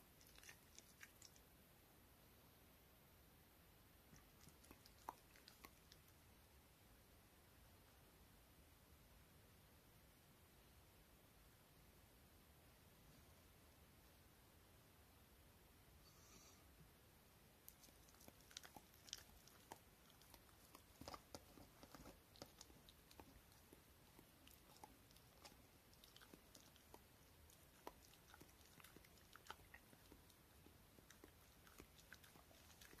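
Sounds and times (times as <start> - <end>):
dog chewing rice: 0.2 - 1.4, 4.2 - 6.0, 17.7 - 33.0.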